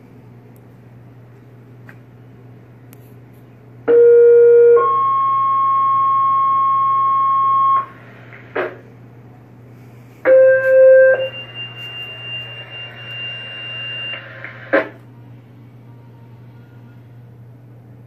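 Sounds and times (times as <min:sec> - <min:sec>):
radio click: 0:08.3 - 0:08.8.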